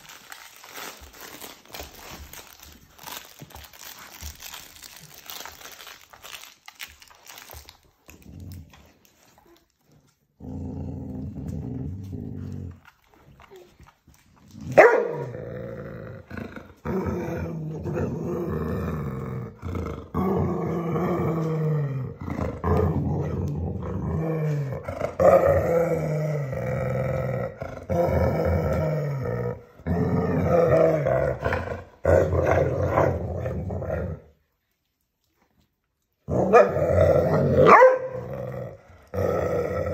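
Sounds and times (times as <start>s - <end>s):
dog play-growling: 7.4s - 34.4s, 36.2s - 39.9s.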